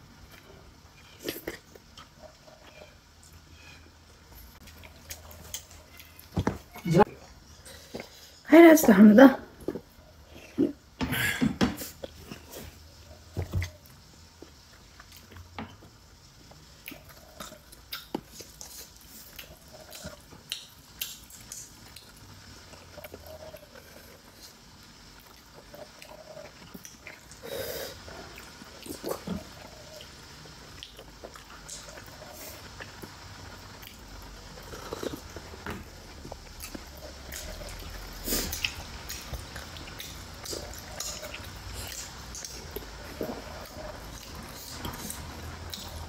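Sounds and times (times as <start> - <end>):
chewing with wet clicks: 16.8 - 23.9, 36.2 - 46.0.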